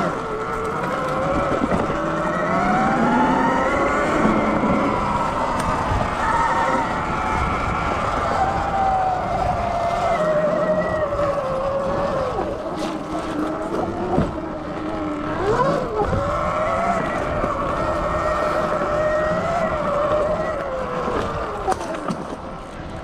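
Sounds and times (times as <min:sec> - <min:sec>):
electric motor whining: 0:00.0 - 0:23.0
low wind rumble: 0:00.0 - 0:23.0.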